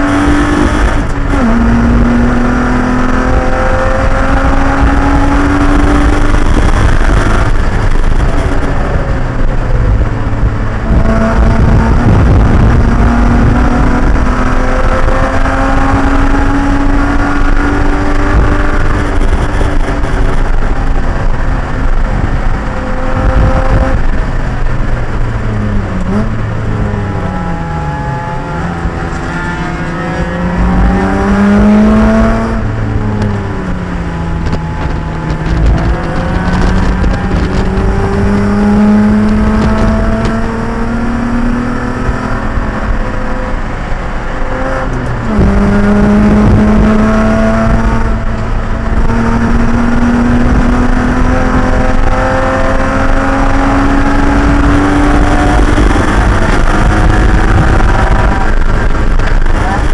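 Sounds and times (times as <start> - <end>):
heavy wind noise: 0.0 - 59.9
race car engine revving: 0.0 - 59.9
road rumble: 0.0 - 59.9.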